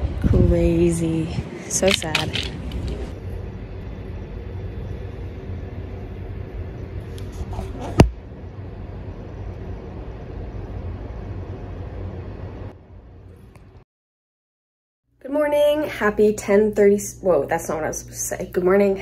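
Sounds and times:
low background rumble: 0:00.0 - 0:13.8.

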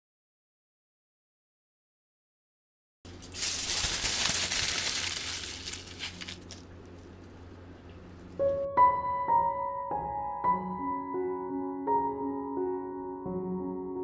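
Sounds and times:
aluminium foil crumpling: 0:03.1 - 0:07.4
piano music: 0:08.2 - 0:14.0.

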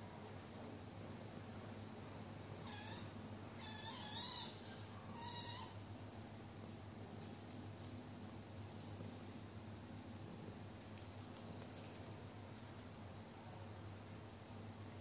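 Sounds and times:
kitten mewing: 0:02.6 - 0:05.8.

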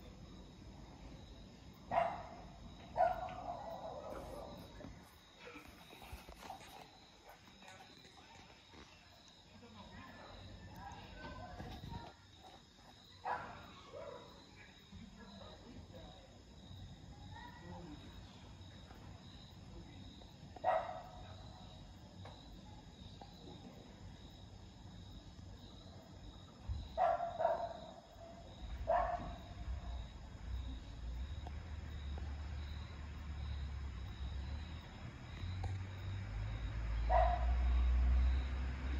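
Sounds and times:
crickets chirping: 0:00.0 - 0:38.9
small dog barking: 0:01.9 - 0:02.4, 0:03.0 - 0:04.6, 0:13.2 - 0:14.4, 0:20.6 - 0:21.3, 0:27.0 - 0:27.8, 0:28.8 - 0:29.4, 0:37.1 - 0:37.7.

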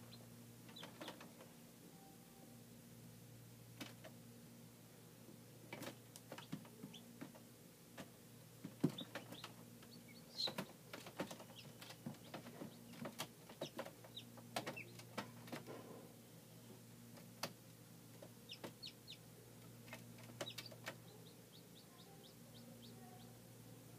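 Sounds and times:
chicks peeping: 0:00.0 - 0:01.5, 0:08.0 - 0:15.8, 0:18.1 - 0:23.4
faint steady hum: 0:00.0 - 0:23.9
clicks and taps of chicks moving: 0:00.1 - 0:01.5, 0:03.8 - 0:04.2, 0:05.7 - 0:15.8, 0:17.1 - 0:22.7.

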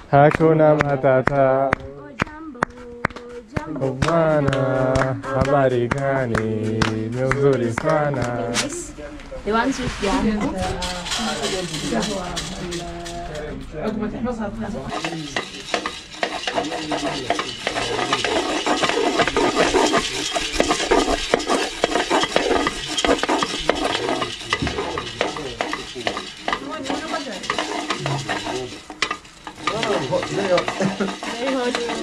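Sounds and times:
coffee beans rattling in a pot: 0:03.8 - 0:08.4, 0:10.1 - 0:13.6, 0:14.9 - 0:32.0.

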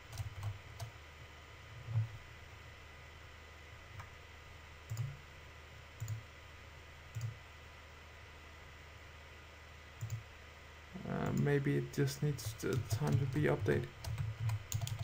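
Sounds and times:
steady low hum: 0:00.0 - 0:15.0
computer mouse clicks: 0:04.9 - 0:05.2, 0:06.0 - 0:06.2, 0:07.1 - 0:07.4, 0:10.0 - 0:10.2, 0:12.6 - 0:15.0.

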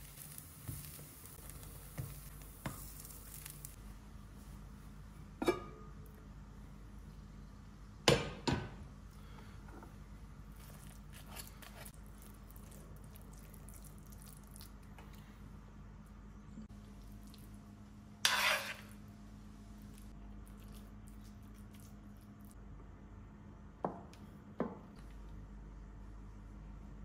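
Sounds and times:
metal spoon scraping pan: 0:18.2 - 0:19.0.

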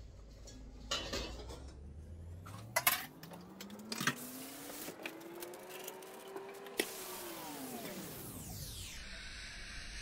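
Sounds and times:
pot lid and dishes clinking: 0:00.9 - 0:01.7.

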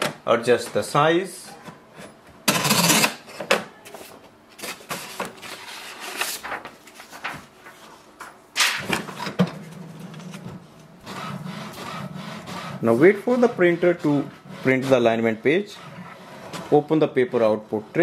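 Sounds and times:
paper rustling: 0:03.9 - 0:08.9
printer mechanism humming: 0:08.6 - 0:17.1.

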